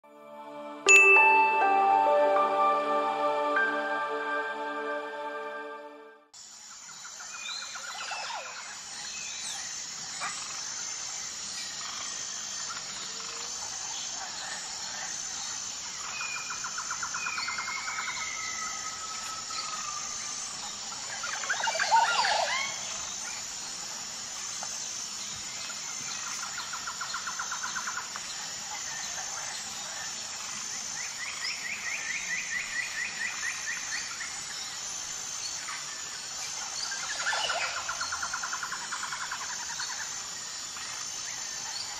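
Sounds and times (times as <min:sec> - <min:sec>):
high-pitched pulsing drone: 0:00.0 - 0:06.2.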